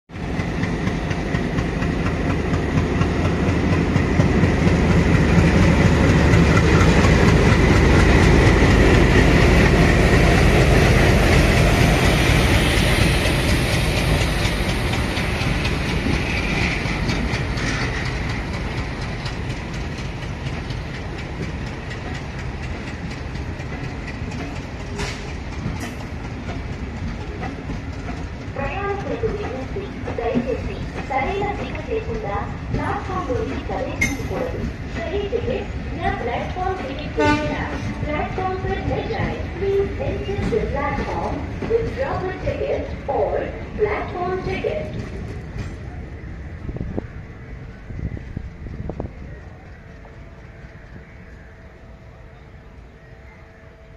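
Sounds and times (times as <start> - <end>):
diesel locomotive engine running: 0.1 - 53.9
wagon wheels clickety-clack: 13.5 - 35.5, 36.2 - 43.3.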